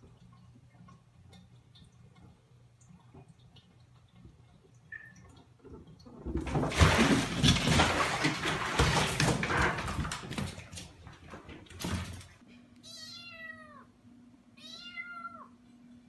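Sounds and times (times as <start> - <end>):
cat splashing in water: 3.0 - 12.4.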